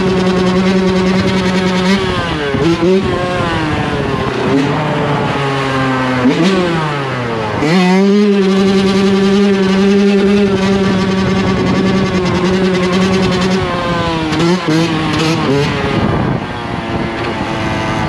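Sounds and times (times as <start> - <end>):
dirt bike engine revving: 0.0 - 18.0.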